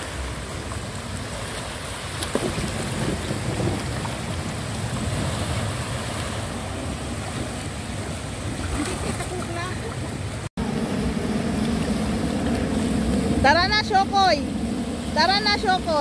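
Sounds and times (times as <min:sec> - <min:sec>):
surf washing: 0:00.0 - 0:16.0
wind buffeting microphone: 0:00.0 - 0:16.0.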